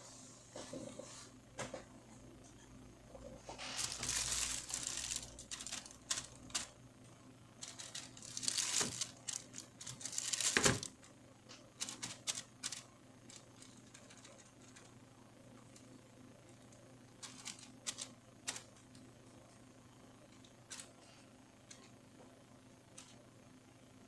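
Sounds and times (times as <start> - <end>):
faint steady hum: 0.0 - 24.0
crackling and ticking clicks: 3.8 - 6.7.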